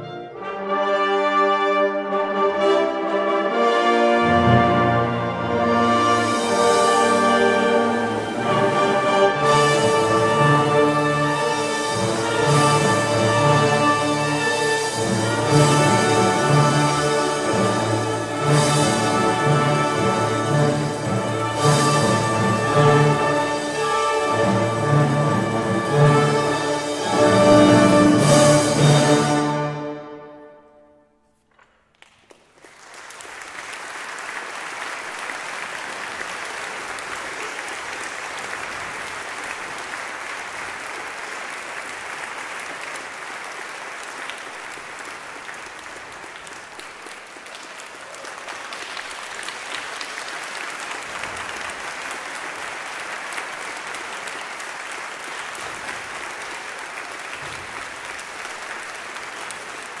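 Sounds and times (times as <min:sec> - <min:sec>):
audience applause: 0:31.9 - 1:00.0.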